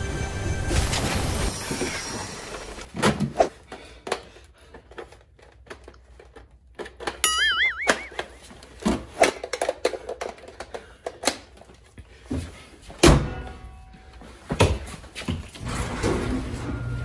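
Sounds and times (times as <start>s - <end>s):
brief wavering tone: 7.2s - 8.2s.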